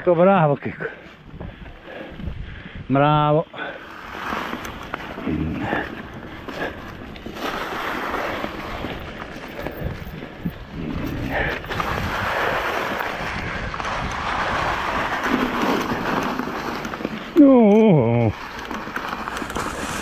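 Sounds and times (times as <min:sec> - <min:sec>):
wind rushing over microphone: 0:01.2 - 0:03.3, 0:04.0 - 0:16.7
tyres rolling through dry leaves: 0:03.5 - 0:20.0
bike knocks and rattles: 0:04.0 - 0:20.0.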